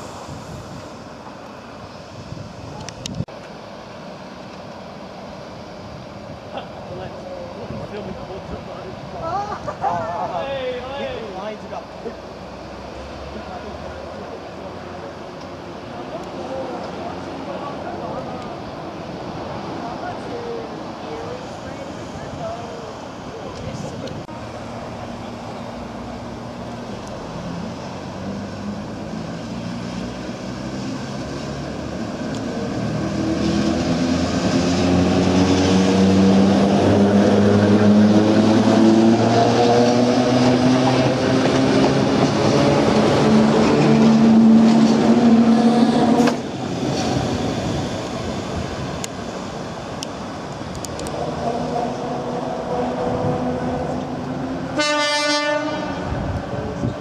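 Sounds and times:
train horn toot: 0:54.7 - 0:56.1.

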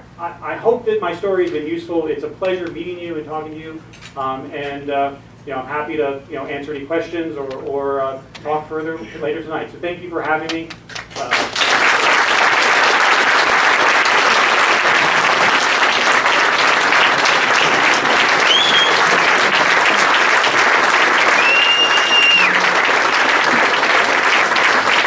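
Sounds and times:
audience applauding: 0:10.7 - 0:25.0
short high whistles: 0:18.4 - 0:19.0, 0:21.3 - 0:22.6.

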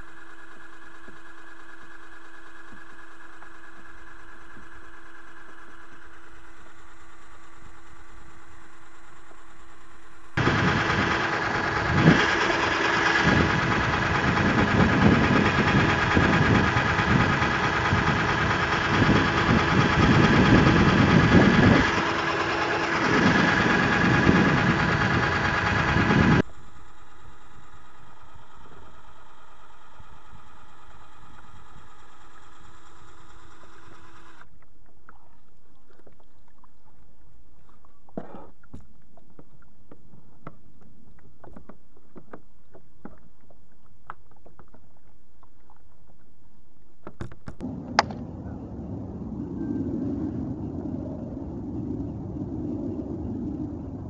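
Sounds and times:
cordless drill whining: 0:10.4 - 0:26.4.

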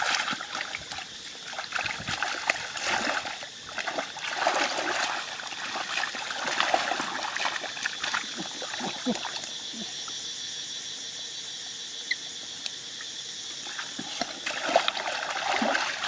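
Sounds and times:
hands sloshing in muddy water: 0:00.0 - 0:09.9, 0:13.6 - 0:16.0.

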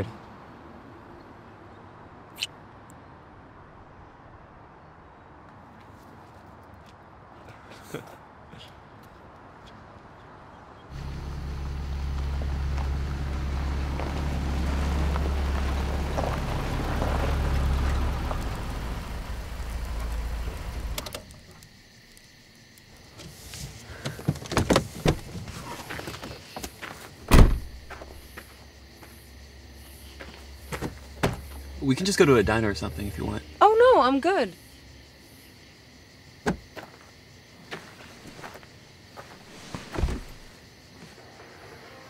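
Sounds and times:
car door shutting: 0:24.0 - 0:25.5, 0:27.3 - 0:27.8, 0:30.8 - 0:31.4, 0:39.7 - 0:40.5.

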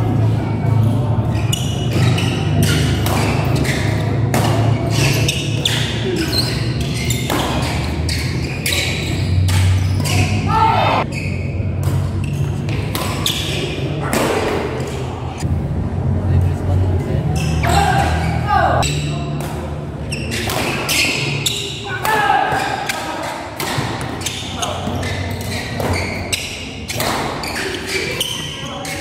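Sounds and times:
rackets striking shuttlecock: 0:01.7 - 0:06.6, 0:11.8 - 0:15.1.

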